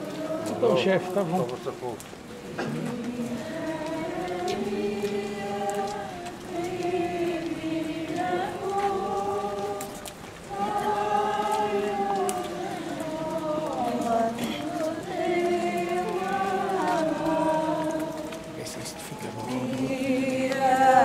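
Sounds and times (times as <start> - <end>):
crowd singing a hymn: 0.0 - 21.0.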